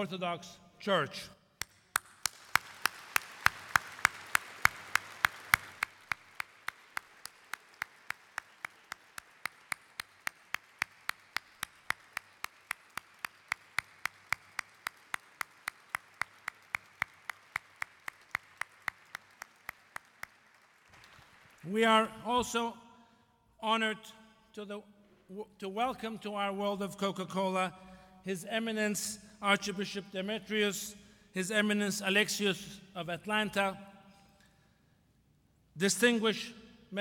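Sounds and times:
single person clapping close: 1.6 - 21.5
audience applauding: 1.9 - 21.7.

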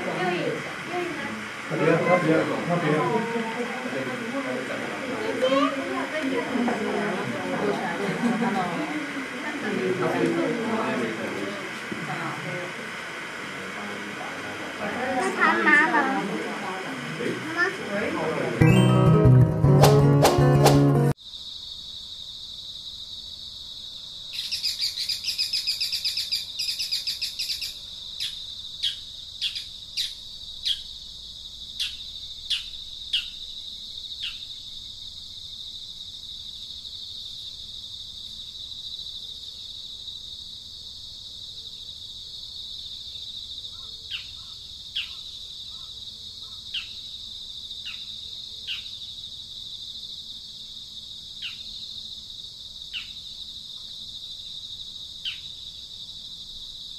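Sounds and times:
rapid chirping: 24.4 - 30.9.

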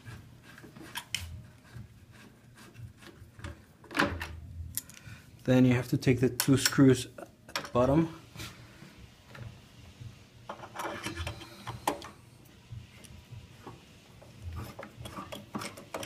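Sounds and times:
allen wrench turning screws: 14.6 - 16.0.

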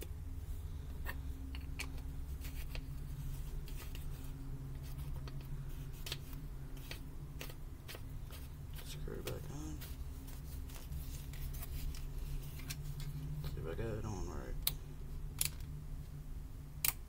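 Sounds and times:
steady low hum: 0.0 - 17.0
clicks of batteries and plastic parts: 16.8 - 17.0.

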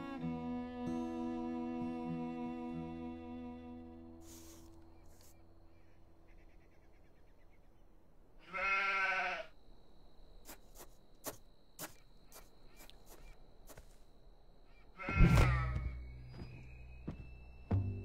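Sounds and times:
sheep bleating: 8.4 - 9.5, 15.0 - 15.9.

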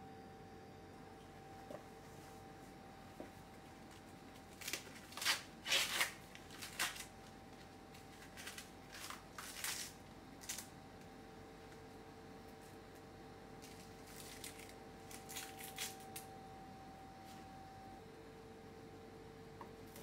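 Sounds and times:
corn husk ripping and rustling: 4.5 - 7.2, 7.9 - 10.7, 13.6 - 16.0.

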